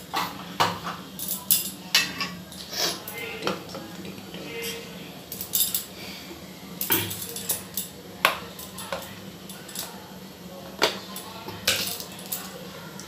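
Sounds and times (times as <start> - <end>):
metal spoon clinking on bowls: 1.2 - 3.6, 4.6 - 5.9, 6.8 - 10.0, 10.8 - 12.6.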